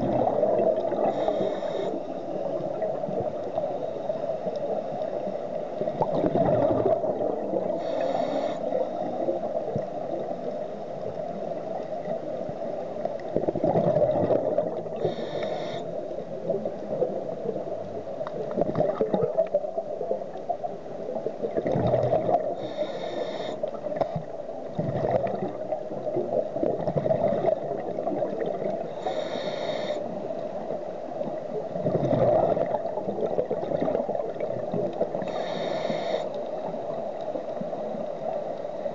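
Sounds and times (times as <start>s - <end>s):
exhaled bubbles gurgling: 0.0s - 38.9s
steady underwater hiss: 0.0s - 38.9s
scuba regulator breathing: 0.9s - 2.5s, 7.6s - 9.4s, 14.9s - 16.0s, 22.4s - 23.8s, 28.9s - 30.2s, 35.2s - 36.6s.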